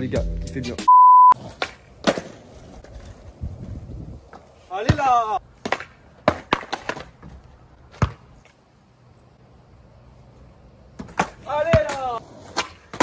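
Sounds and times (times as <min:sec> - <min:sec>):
skateboard clacking on asphalt: 0:05.6 - 0:07.6.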